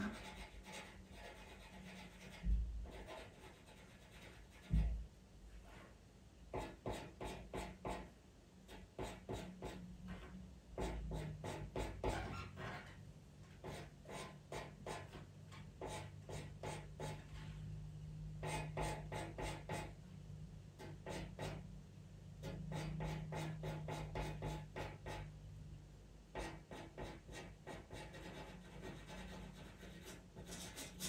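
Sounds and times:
pencil scratching on paper: 0:00.0 - 0:04.9, 0:06.6 - 0:08.1, 0:08.7 - 0:12.9, 0:13.6 - 0:17.3, 0:18.4 - 0:19.9, 0:22.4 - 0:25.3, 0:26.4 - 0:31.0.

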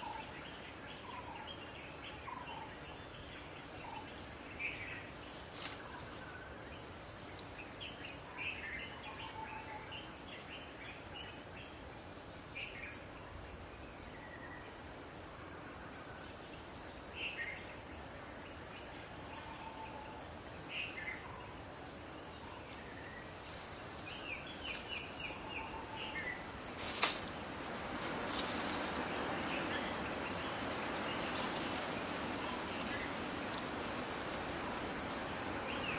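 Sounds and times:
insects buzzing: 0:00.0 - 0:35.9
birds chirping: 0:22.8 - 0:35.9.

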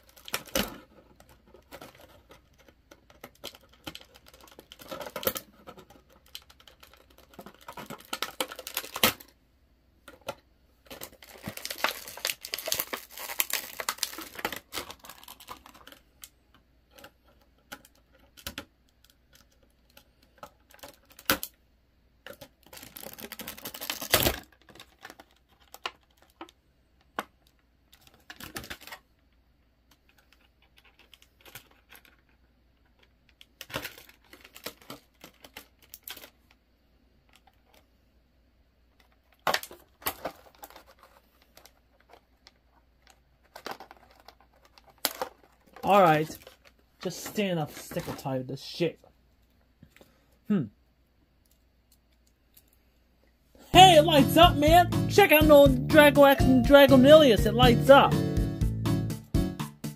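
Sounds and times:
packaging crinkling and tearing: 0:00.0 - 0:09.4, 0:10.8 - 0:16.3, 0:22.3 - 0:26.6, 0:27.5 - 0:29.1, 0:33.3 - 0:36.6, 0:39.0 - 0:48.3
plastic toy parts clicking: 0:00.0 - 0:09.4, 0:10.0 - 0:21.6, 0:22.2 - 0:29.3, 0:29.9 - 0:36.6, 0:39.0 - 0:47.2.

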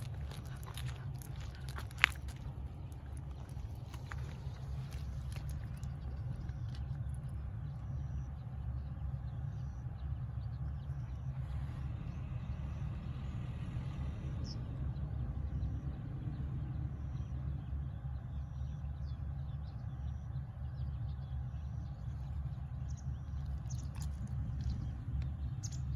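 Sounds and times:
wind buffeting microphone: 0:21.9 - 0:25.9.

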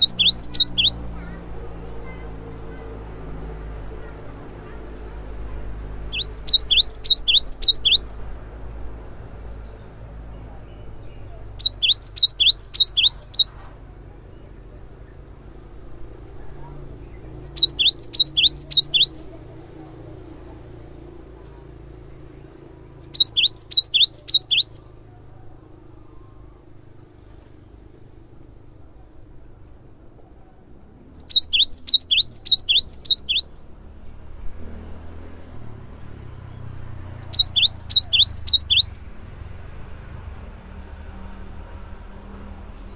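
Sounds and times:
bird singing high sharp notes: 0:00.0 - 0:01.0, 0:06.1 - 0:08.2, 0:11.1 - 0:13.6, 0:17.2 - 0:19.4, 0:23.0 - 0:24.8, 0:31.1 - 0:33.5, 0:37.1 - 0:39.1.

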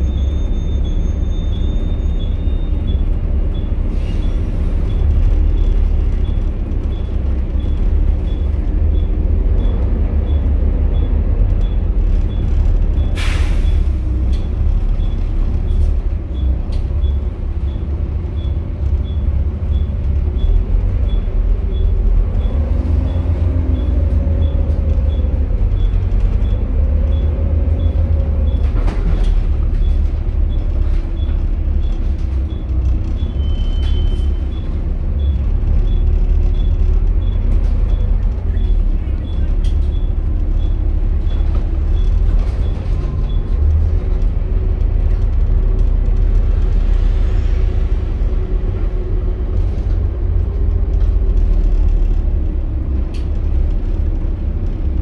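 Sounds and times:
bus diesel engine rumble: 0:00.0 - 0:55.0
air brakes hissing: 0:03.9 - 0:04.8, 0:13.1 - 0:14.1.

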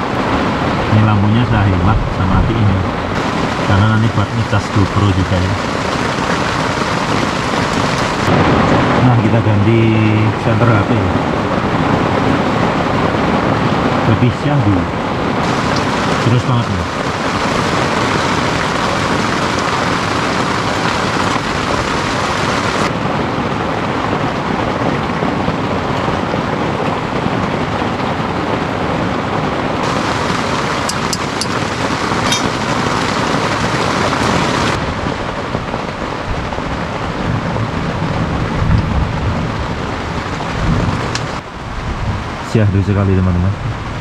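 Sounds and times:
low rumble: 0:00.0 - 0:11.9
heavy rain on a tent: 0:00.0 - 0:44.0.

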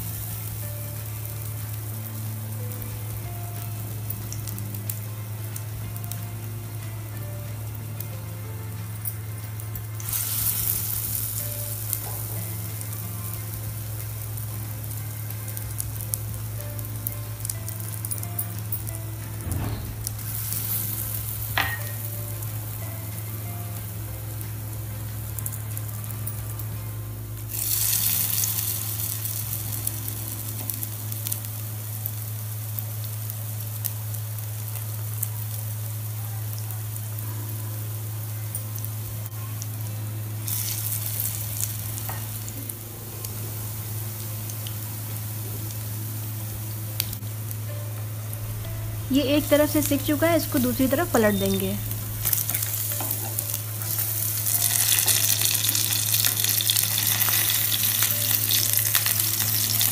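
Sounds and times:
patties sizzling in hot oil: 0:00.0 - 0:59.9
low hum: 0:37.2 - 0:59.9.

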